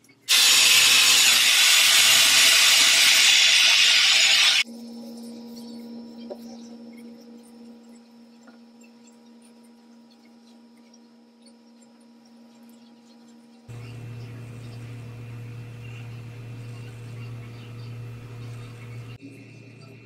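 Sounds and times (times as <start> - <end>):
hair dryer blowing: 0.3 - 4.6, 13.7 - 19.2
deeper hum: 13.7 - 19.2
electrical hum: 13.7 - 19.2.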